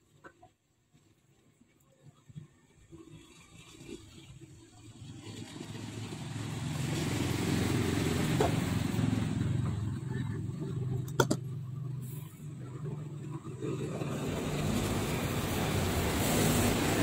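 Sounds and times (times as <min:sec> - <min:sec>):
motor vehicle passing: 0:03.6 - 0:17.0.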